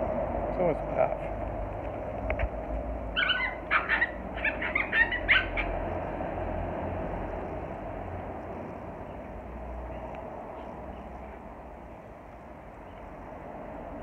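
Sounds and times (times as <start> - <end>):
puppies yipping and squealing: 3.2 - 5.9.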